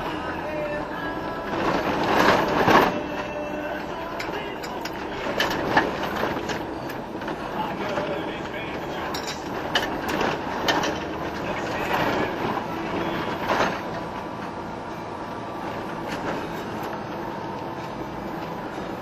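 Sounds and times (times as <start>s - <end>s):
vehicle running noise: 0.0s - 19.0s
knocks and rattles: 4.2s - 14.5s.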